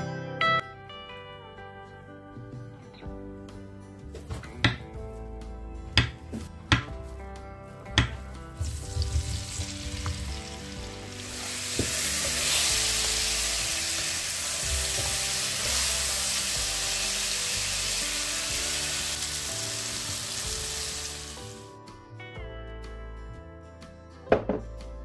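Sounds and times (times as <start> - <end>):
banana pieces sizzling in a pan: 8.6 - 21.6.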